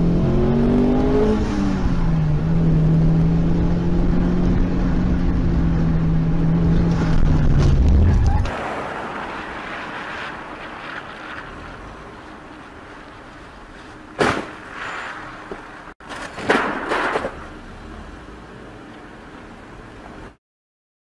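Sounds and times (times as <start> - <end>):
low road noise: 0.0 - 20.4
car crash impact: 7.0 - 11.8, 14.1 - 17.5
clattering impacts: 14.2 - 17.5.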